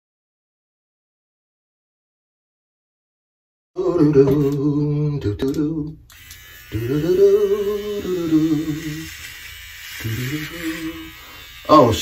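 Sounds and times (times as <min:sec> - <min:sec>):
man singing in a chant-like way: 0:03.8 - 0:06.0, 0:06.7 - 0:09.1, 0:10.0 - 0:12.0.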